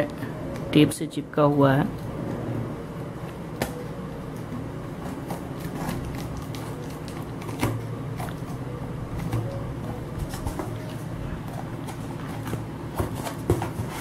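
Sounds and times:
steady low hum: 0:00.0 - 0:14.0
cardboard box rustling and knocking: 0:10.2 - 0:14.0.

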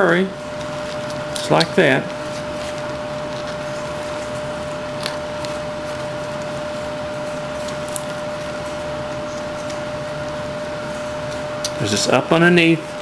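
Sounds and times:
steady hum and hiss: 0:00.0 - 0:13.0.

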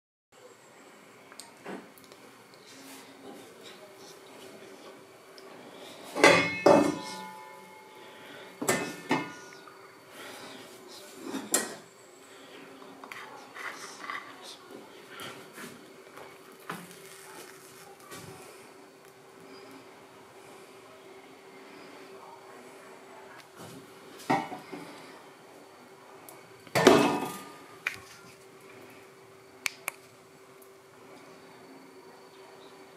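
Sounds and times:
kitchenware clattering: 0:06.1 - 0:07.9, 0:08.6 - 0:09.5, 0:24.3 - 0:24.7, 0:26.8 - 0:27.6
metal cookware clanking: 0:06.1 - 0:08.0.

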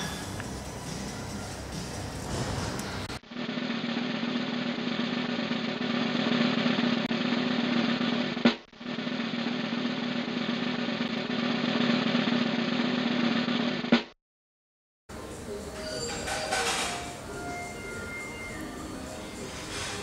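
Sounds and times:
snare drum roll: 0:03.4 - 0:14.1.

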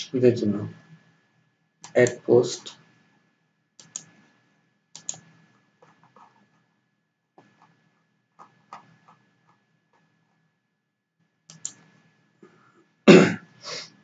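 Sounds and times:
mouse and keyboard clicks: 0:03.8 - 0:04.2, 0:05.0 - 0:06.6, 0:08.4 - 0:10.1, 0:11.5 - 0:11.9.

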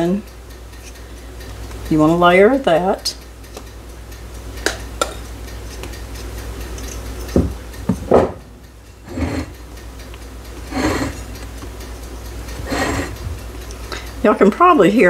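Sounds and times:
kitchen timer ticking: 0:00.0 - 0:15.0.

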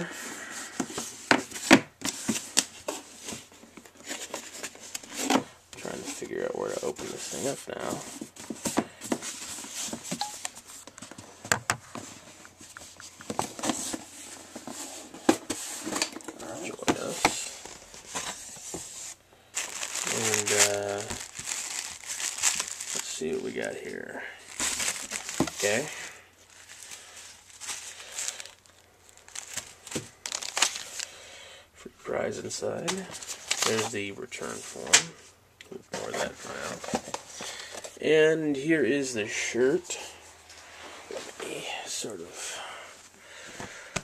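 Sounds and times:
packaging rustling and crinkling: 0:00.4 - 0:31.2, 0:32.8 - 0:35.0, 0:36.0 - 0:38.0.

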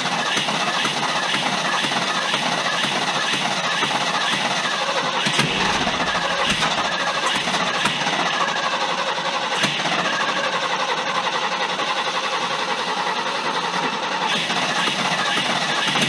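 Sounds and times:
engine cranking and firing: 0:04.3 - 0:10.2.

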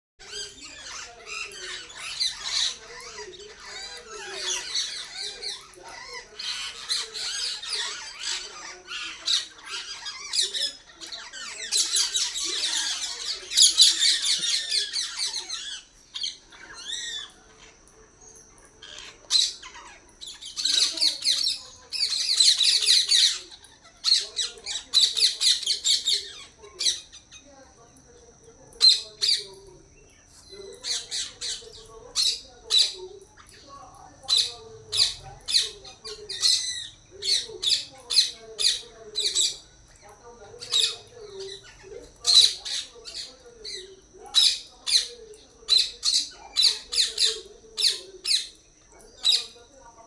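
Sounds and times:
parakeets screeching: 0:00.2 - 0:50.0.

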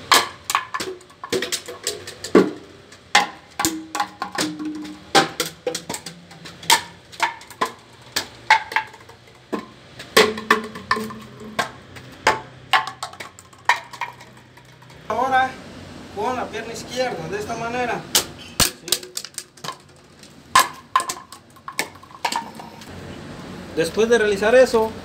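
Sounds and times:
plastic bottles clattering on concrete: 0:00.0 - 0:15.1, 0:18.6 - 0:22.9.

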